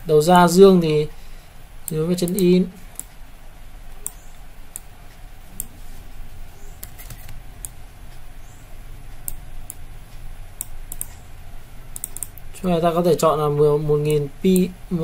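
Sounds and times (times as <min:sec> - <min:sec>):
faint low hum: 0:00.0 - 0:15.0
computer mouse clicks: 0:01.8 - 0:03.2, 0:03.9 - 0:04.9, 0:06.6 - 0:09.8, 0:10.6 - 0:11.3, 0:11.9 - 0:12.5.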